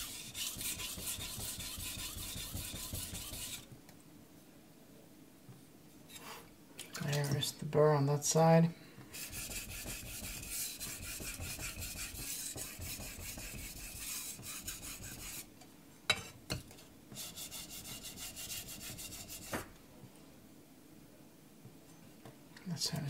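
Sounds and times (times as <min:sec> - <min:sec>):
knife scraping on water stone: 0:00.0 - 0:03.7, 0:09.2 - 0:15.5.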